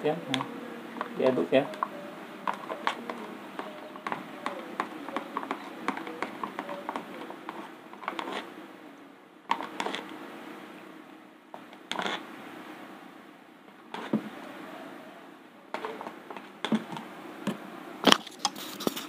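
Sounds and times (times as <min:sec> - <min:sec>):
stick scraping plastic cup: 0:01.7 - 0:08.5, 0:09.5 - 0:10.1, 0:11.9 - 0:12.2, 0:13.9 - 0:14.2.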